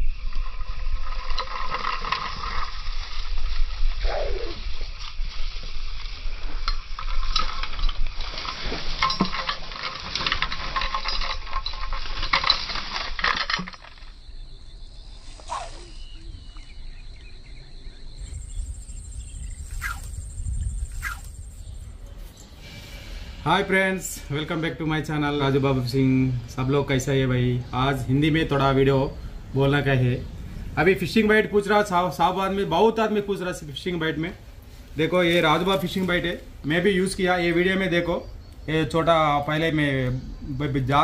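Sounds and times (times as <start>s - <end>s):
insects buzzing: 9.4s - 41.0s
high insect whine: 10.6s - 33.4s.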